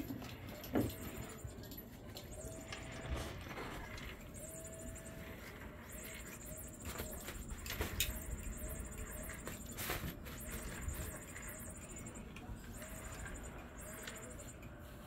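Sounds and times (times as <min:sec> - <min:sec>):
toy motor whirring: 0:00.0 - 0:15.0.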